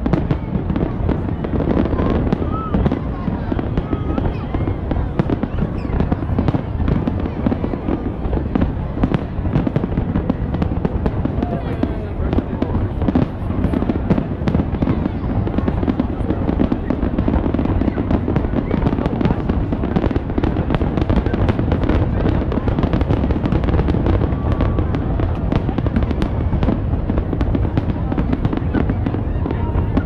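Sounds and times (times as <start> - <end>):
fireworks bangs and crackling: 0.0 - 30.0.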